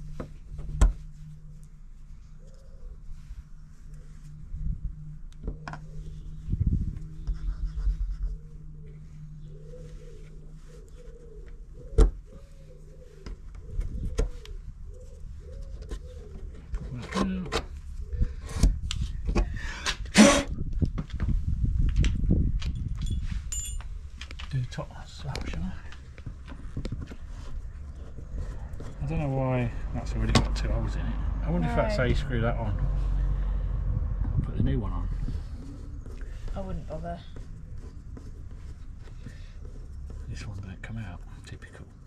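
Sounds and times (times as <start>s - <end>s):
pigeon cooing: 9.4s - 16.9s.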